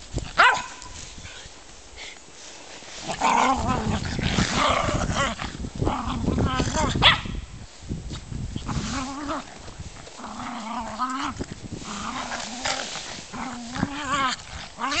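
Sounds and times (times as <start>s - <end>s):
dogs growling: 3.0s - 7.0s, 8.6s - 15.0s.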